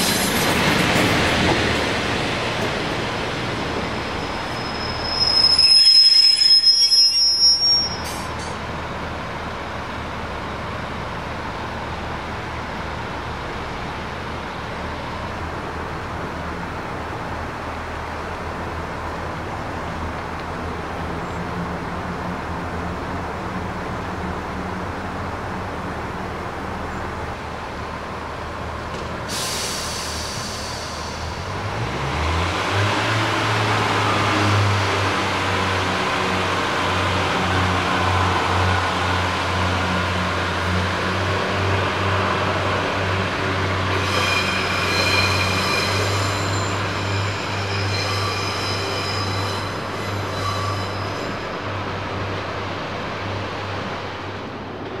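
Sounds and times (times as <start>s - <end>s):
train rumbling: 0.0s - 55.0s
train wheels squealing: 4.0s - 8.6s, 29.3s - 31.5s, 43.9s - 51.6s.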